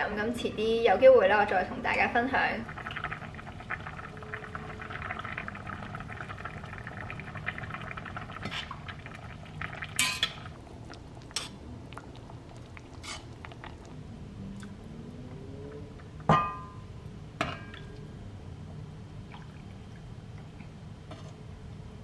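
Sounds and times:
steady low hum: 0.0s - 22.0s
soup bubbling: 1.9s - 18.3s.

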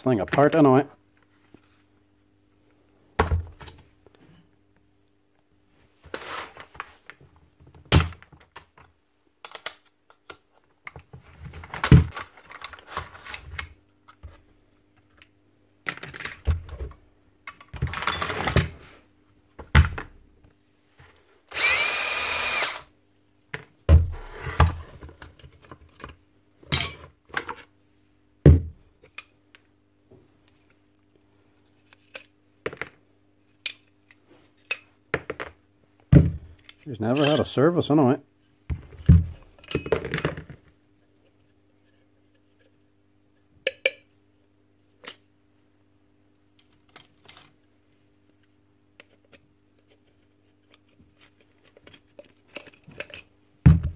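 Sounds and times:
power drill-driver running: 21.5s - 22.9s
plastic parts knocking and rattling: 51.2s - 53.9s.

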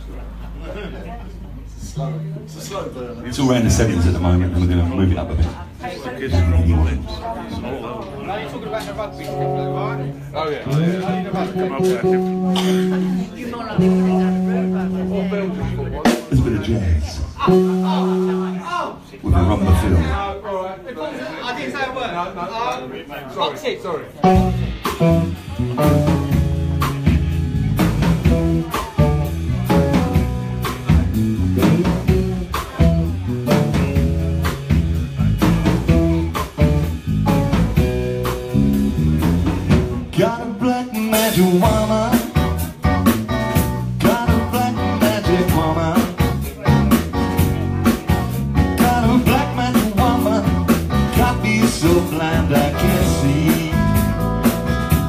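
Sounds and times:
live rock band playing: 2.0s - 20.4s, 24.0s - 55.0s
man singing through pa: 40.1s - 42.4s, 44.0s - 46.4s, 48.7s - 54.2s.

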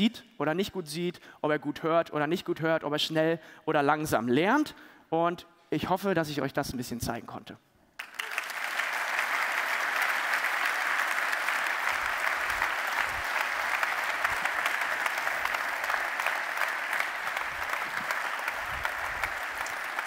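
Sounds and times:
large audience applauding: 8.0s - 20.0s.

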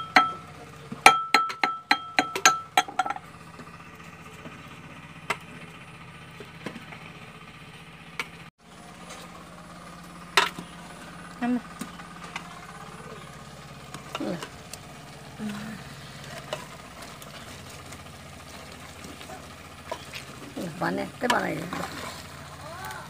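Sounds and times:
pestle pounding in a mortar: 0.0s - 0.4s, 1.0s - 3.2s
steady low hum: 0.0s - 23.0s.

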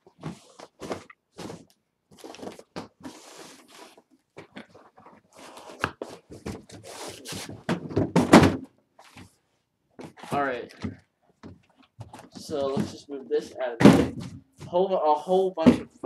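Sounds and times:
cardboard rustling and scraping: 0.1s - 8.3s.

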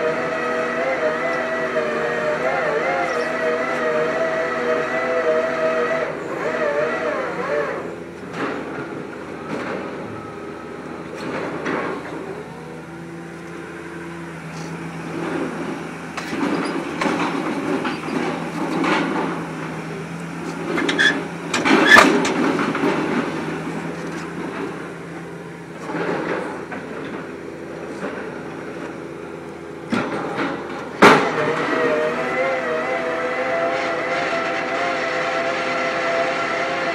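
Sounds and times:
drilling rig engine and hydraulics: 0.0s - 36.9s
wavering machine whine: 0.0s - 36.9s.

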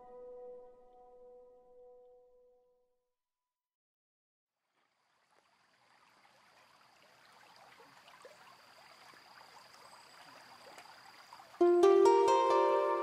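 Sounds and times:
faint rushing water: 4.6s - 13.0s.

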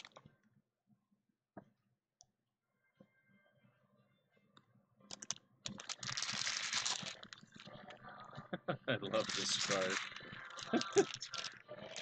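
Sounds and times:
foil wrapper crinkling: 5.7s - 7.7s, 9.2s - 11.5s.

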